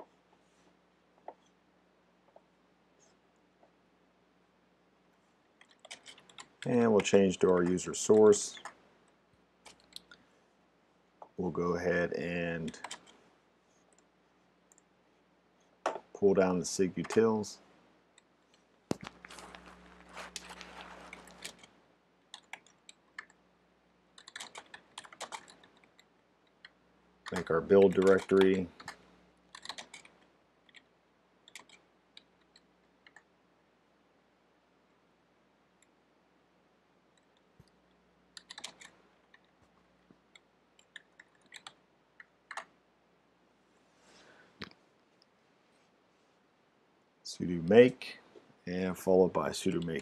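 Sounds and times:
keyboard typing: 5.6s - 6.8s, 12.6s - 13.2s, 22.3s - 23.4s, 24.2s - 33.3s, 38.3s - 39.5s, 40.3s - 42.7s.

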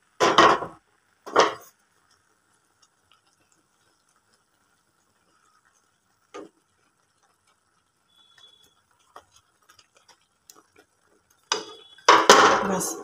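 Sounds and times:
wooden spoon stirring in pan: 0.0s - 13.0s
kitchen utensils clattering: 1.3s - 1.6s.

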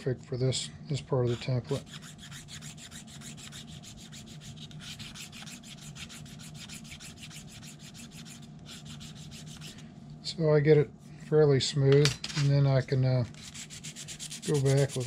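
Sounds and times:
file rasping on plastic: 1.3s - 9.8s, 13.3s - 15.0s.

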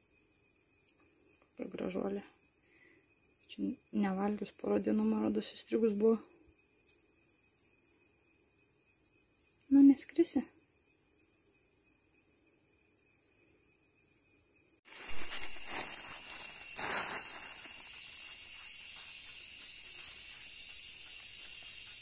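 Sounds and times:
jungle insect chorus: 0.0s - 22.0s
shrill cicada drone: 13.0s - 22.0s.

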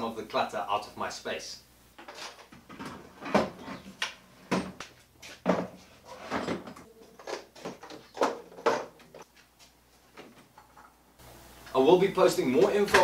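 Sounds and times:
objects knocking on wooden shelves: 2.0s - 9.3s.

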